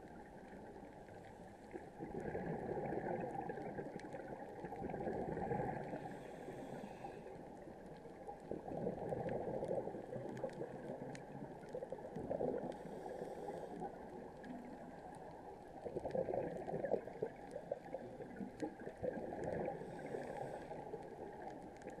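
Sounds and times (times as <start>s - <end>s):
exhaled bubbles gurgling underwater: 0.0s - 22.0s
regulator inhale hiss: 6.0s - 7.4s, 12.8s - 13.9s, 19.8s - 21.0s.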